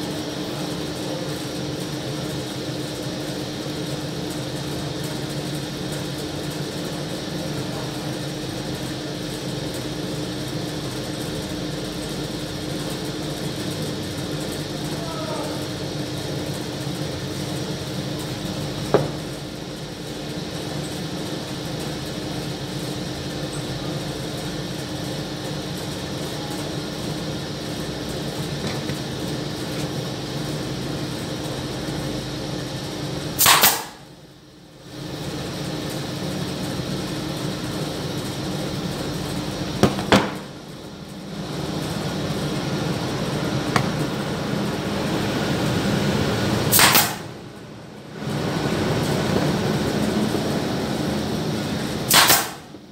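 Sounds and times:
workshop machine hum: 0.0 - 52.9
pneumatic nailer firing: 18.9 - 19.4, 33.4 - 34.1, 39.8 - 40.6, 46.7 - 47.4, 52.0 - 52.8.

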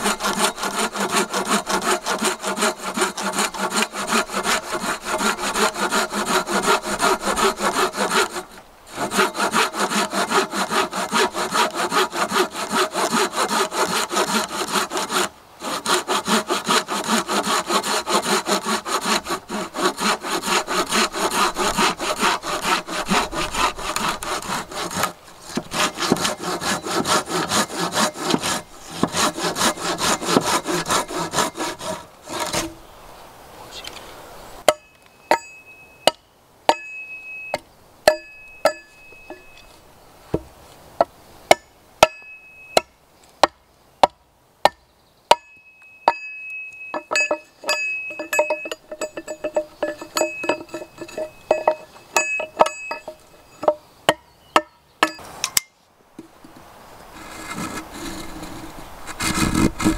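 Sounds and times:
saw cutting wooden pole: 0.0 - 32.8, 47.0 - 53.8, 57.2 - 59.9
wood being struck: 0.0 - 32.8, 34.7 - 39.6, 40.3 - 56.4.

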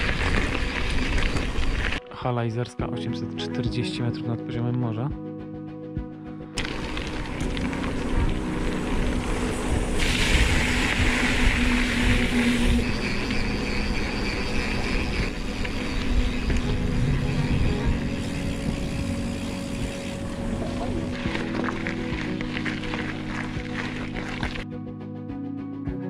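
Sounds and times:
bike tyre noise: 0.0 - 2.0, 6.6 - 24.6
wind rumbling on microphone: 0.0 - 2.0, 6.6 - 24.6
bright hiss: 9.4 - 14.2.

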